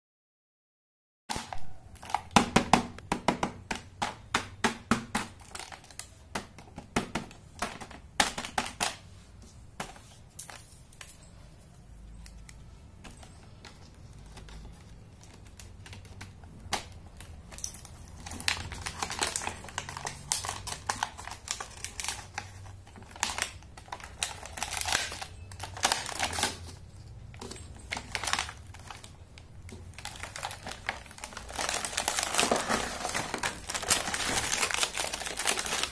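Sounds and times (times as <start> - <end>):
plastic crinkling: 12.1 - 35.9.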